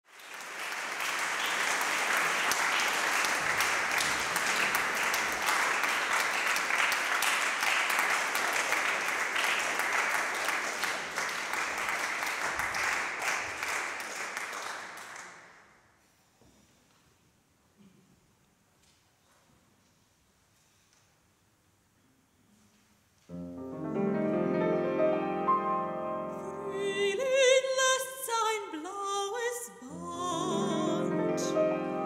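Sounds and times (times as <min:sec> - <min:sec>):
audience applauding: 0:00.0 - 0:15.7.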